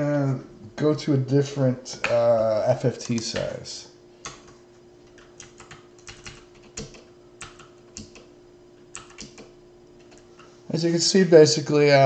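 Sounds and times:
faint steady hum: 0:00.0 - 0:12.0
computer mouse clicks: 0:08.9 - 0:10.5.

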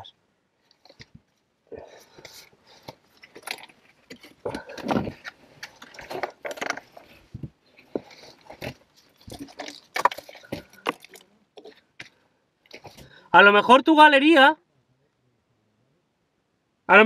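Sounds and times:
scraping against rock: 0:00.7 - 0:13.2.

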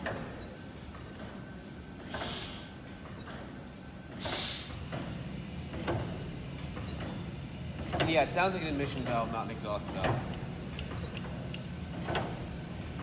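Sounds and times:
air hissing from engine: 0:02.1 - 0:02.8, 0:04.2 - 0:04.8.

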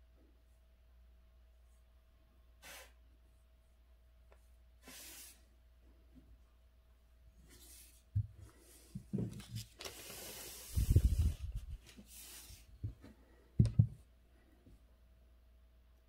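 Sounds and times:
paper sliding hiss: 0:02.6 - 0:03.0, 0:04.8 - 0:05.6, 0:07.5 - 0:12.9
dull knocks on desk: 0:13.6 - 0:14.0.

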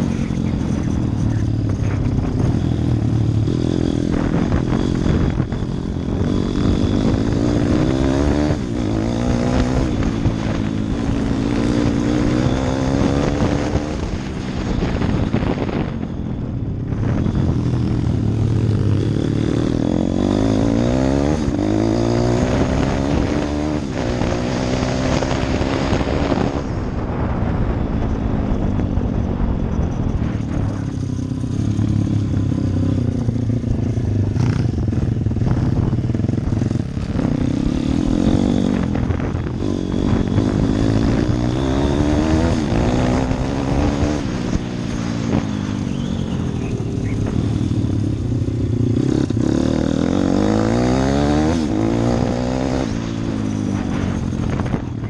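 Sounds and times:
pit bike engine revving: 0:00.0 - 0:16.1, 0:17.0 - 0:27.6, 0:30.1 - 0:55.0.

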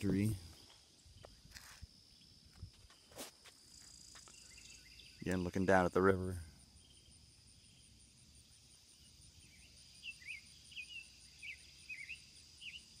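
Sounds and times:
crickets and insects trilling: 0:00.0 - 0:13.0
bird chirping: 0:03.8 - 0:06.0, 0:08.9 - 0:13.0.

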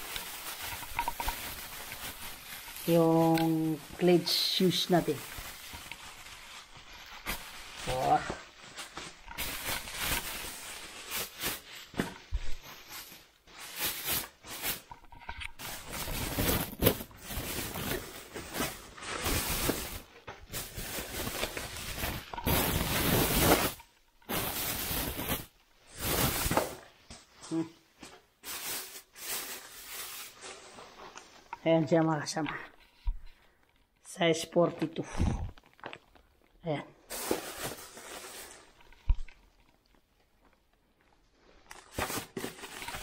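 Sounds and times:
plastic wrapping rustling: 0:00.0 - 0:34.0, 0:34.9 - 0:43.0.

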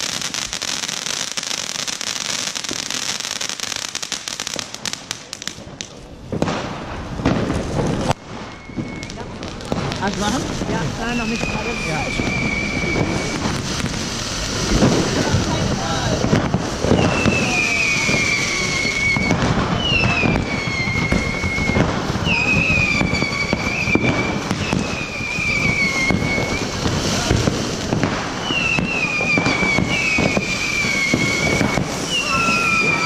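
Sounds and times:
fireworks crackling and popping: 0:00.0 - 0:33.0
shrill firework whistles: 0:08.0 - 0:33.0.

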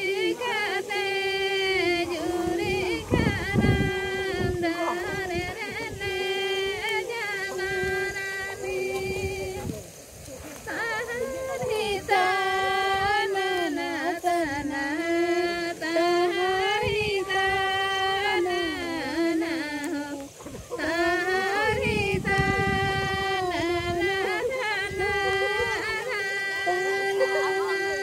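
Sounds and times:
woman singing slow melody: 0:00.0 - 0:10.0, 0:10.6 - 0:28.0.

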